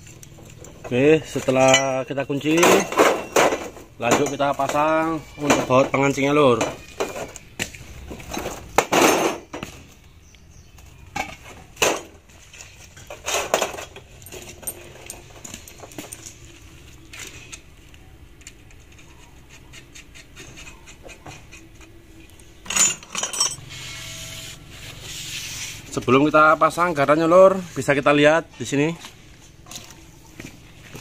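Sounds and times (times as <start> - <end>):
metallic clinks and clanks: 0.0 - 7.4, 12.9 - 16.9, 22.6 - 23.7.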